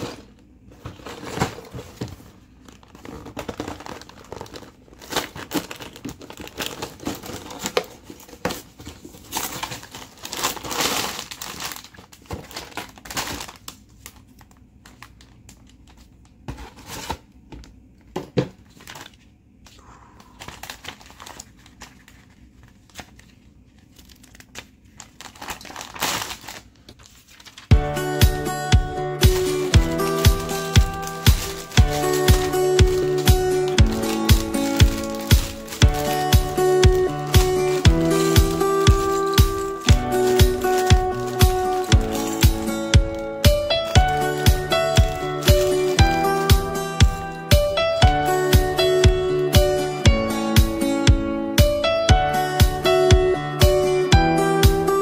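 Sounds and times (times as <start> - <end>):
plastic bags crinkling: 0.8 - 17.1, 18.6 - 19.3, 20.1 - 27.7, 29.2 - 48.1.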